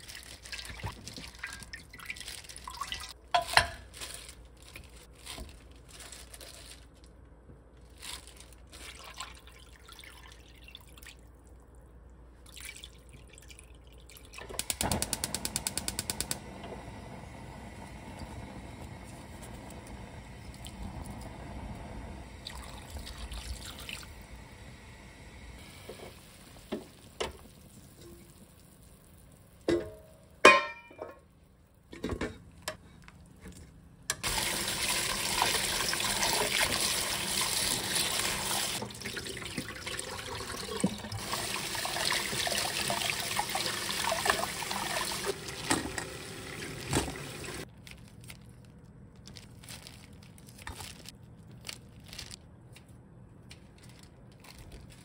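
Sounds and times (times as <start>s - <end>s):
tap running into a steel bowl: 45.6s - 46.2s.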